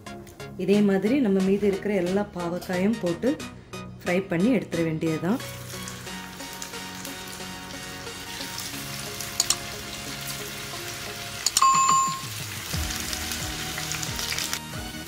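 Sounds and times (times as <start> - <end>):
background music: 0.0 - 15.0
food deep-frying in oil: 5.4 - 15.0
click sound effect: 11.4 - 12.0
bell ding sound effect: 11.5 - 12.3.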